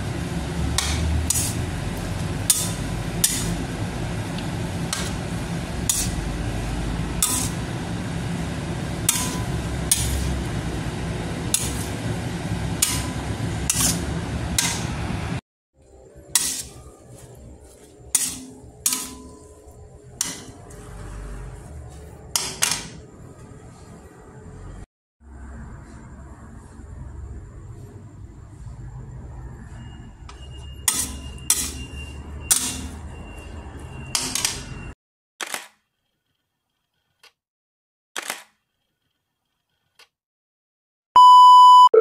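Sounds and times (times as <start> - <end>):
metal spatula clanking on wok: 7.2 - 7.6, 9.1 - 10.2, 18.2 - 19.5, 30.9 - 31.8, 32.5 - 33.0.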